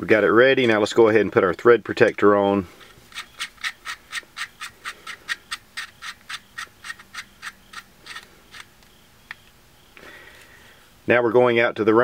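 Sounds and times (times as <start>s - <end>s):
metal thread scraping clicks: 2.8s - 9.5s.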